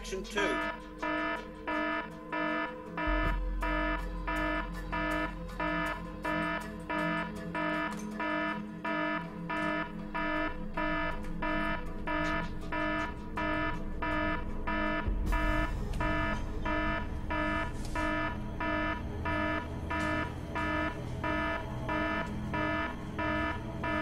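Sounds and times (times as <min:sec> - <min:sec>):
electronic alarm beeping: 0:00.0 - 0:24.0.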